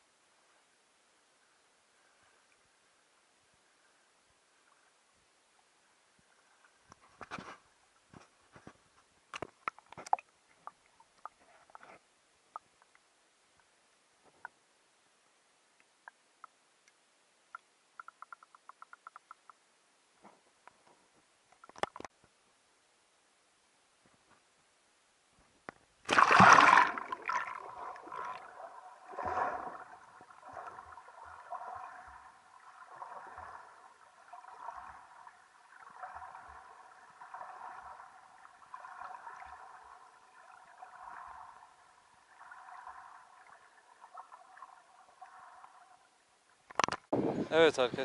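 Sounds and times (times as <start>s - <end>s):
loud splash: 26.1s - 28.3s.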